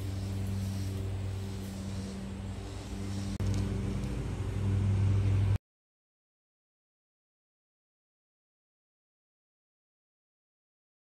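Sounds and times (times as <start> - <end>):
low mechanical hum with drone: 0.0 - 5.6.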